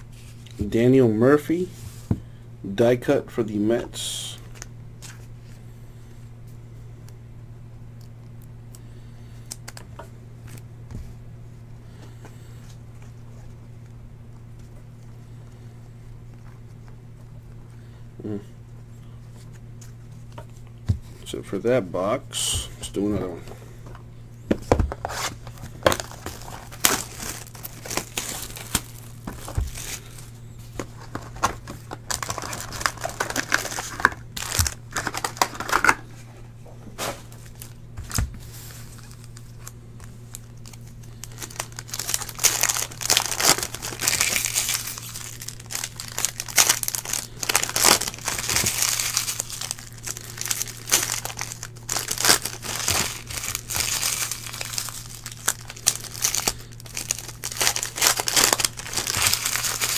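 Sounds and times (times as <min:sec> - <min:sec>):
low electrical hum: 0:00.0 - 0:59.9
foil wrappers crinkling and tearing: 0:24.9 - 0:36.1, 0:37.0 - 0:59.9.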